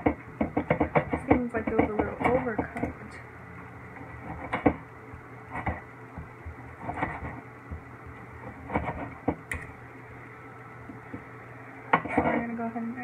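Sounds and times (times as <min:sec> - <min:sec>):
knife chopping on cutting board: 0:00.0 - 0:02.7.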